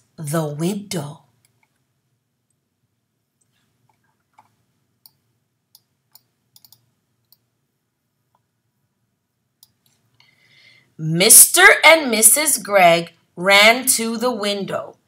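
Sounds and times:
computer mouse clicks: 3.4 - 7.5, 9.6 - 10.3.

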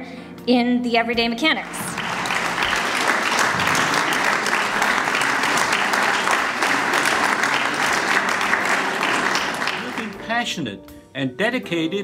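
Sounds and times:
audience applauding: 1.6 - 10.3.

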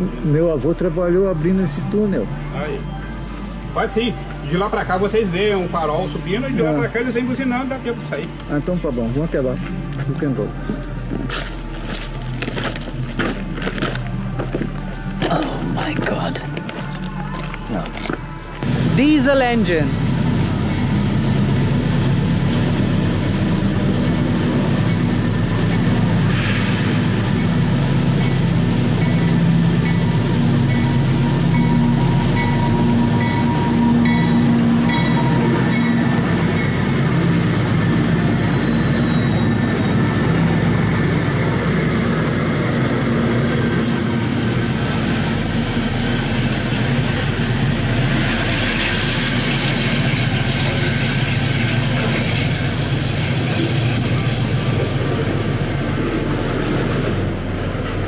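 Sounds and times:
locomotive engine drone: 0.0 - 58.0
freight wagons rolling on rails: 4.8 - 58.0.

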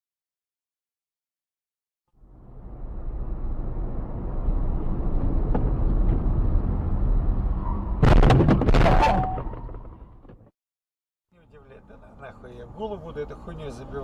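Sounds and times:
car cabin road and engine noise: 2.2 - 10.5, 11.4 - 14.0
car crash impact: 8.0 - 10.5.

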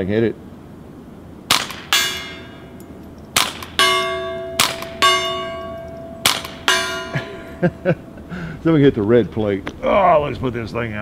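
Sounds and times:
pistol shots: 1.5 - 2.6, 3.3 - 7.0
gong ringing from bullet strike: 3.8 - 7.4.

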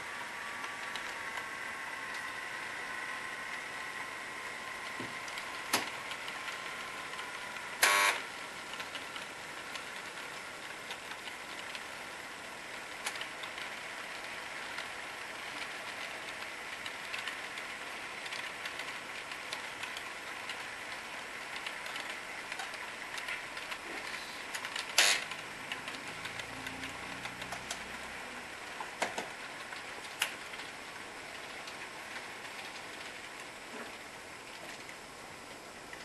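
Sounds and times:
model train wheels clicking: 0.0 - 36.0.

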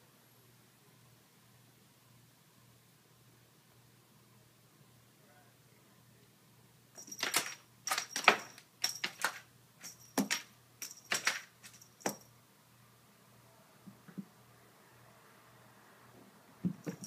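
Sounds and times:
faint metallic jingle: 7.0 - 12.4, 16.8 - 17.0.

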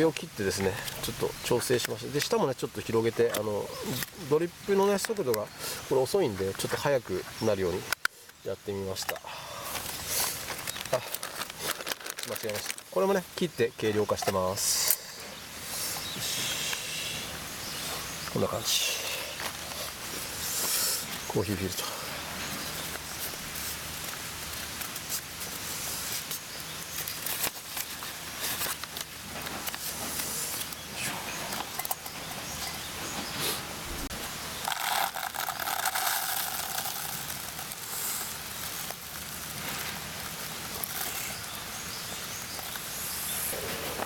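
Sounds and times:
small wood fire crackling: 0.0 - 44.0
paper filter rustling: 9.1 - 14.6, 22.3 - 43.1.

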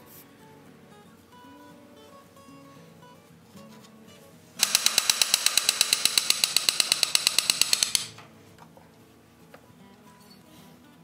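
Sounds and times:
hand ratchet clicking: 4.6 - 8.2.

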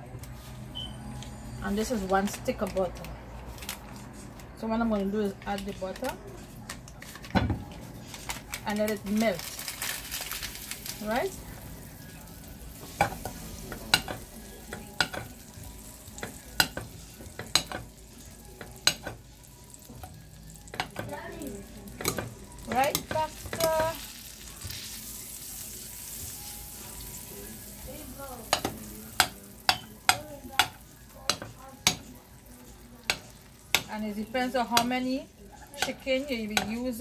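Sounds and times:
butter sizzling: 9.0 - 37.0
metal spatula tapping a pan: 12.9 - 15.4, 16.2 - 17.9, 22.0 - 24.0, 28.4 - 32.2, 33.0 - 35.0, 35.7 - 37.0.

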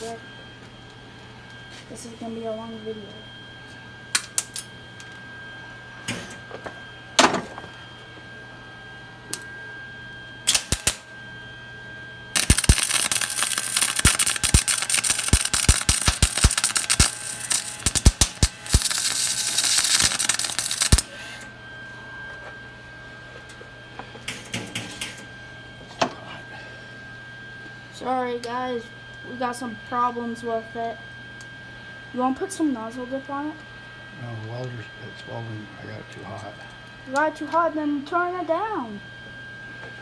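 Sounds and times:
welding arc crackling: 10.5 - 11.1, 12.3 - 21.2.

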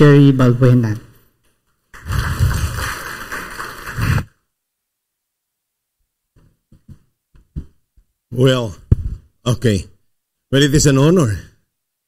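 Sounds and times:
congregation applauding: 2.0 - 4.3.

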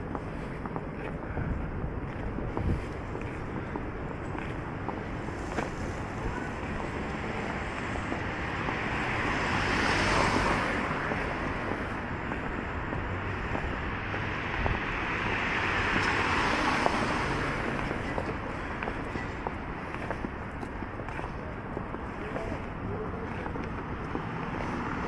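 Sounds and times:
wind noise on microphone: 0.0 - 7.2, 9.6 - 20.7
steady traffic: 0.0 - 25.0
vehicles passing with tyre hiss: 0.0 - 25.0.

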